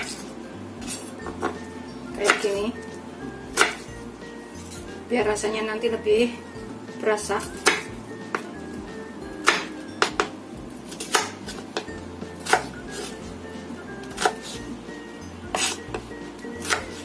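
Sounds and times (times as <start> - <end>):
knife chopping on wooden board: 0.0 - 1.6, 2.2 - 2.6, 3.5 - 3.9, 7.4 - 8.5, 9.4 - 13.2, 14.1 - 14.6, 15.5 - 17.0
background music: 0.0 - 17.0.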